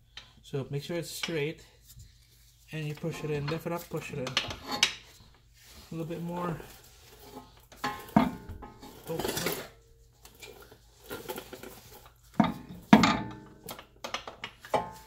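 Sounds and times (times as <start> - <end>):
metal scraping: 5.8 - 9.8.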